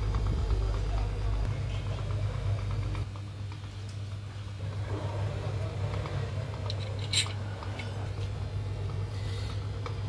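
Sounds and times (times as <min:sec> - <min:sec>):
deep rumble: 0:00.0 - 0:03.1
low machine hum: 0:00.0 - 0:10.0.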